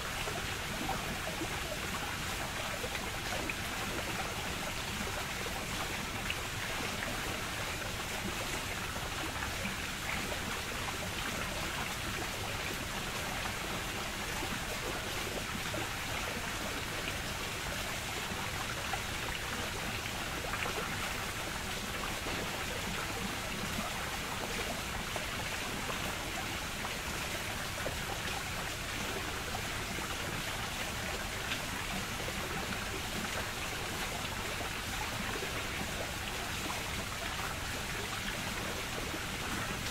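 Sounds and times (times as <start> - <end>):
rushing hissing water: 0.0 - 39.9.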